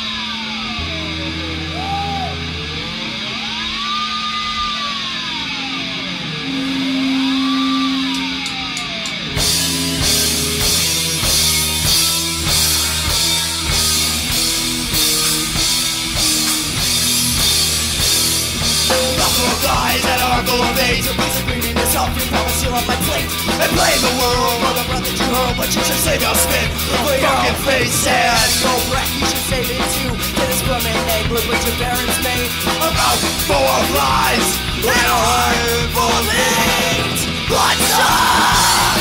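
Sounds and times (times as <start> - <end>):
punk band playing live: 0.0 - 39.0
held bass notes: 9.3 - 39.0.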